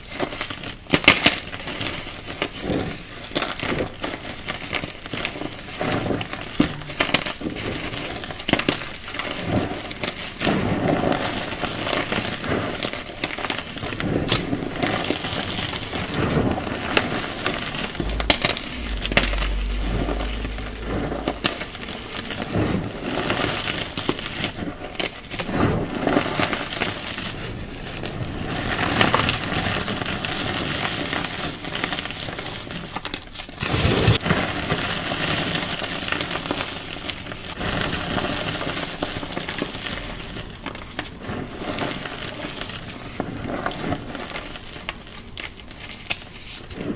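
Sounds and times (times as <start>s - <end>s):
hands crushing dry powder clumps: 0.0s - 17.3s
brief low rumble: 17.7s - 23.4s.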